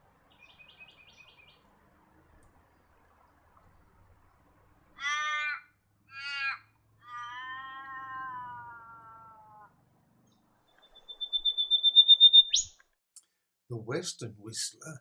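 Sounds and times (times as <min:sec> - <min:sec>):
crow cawing: 0:05.0 - 0:09.7
bird whistling high notes: 0:10.9 - 0:12.7.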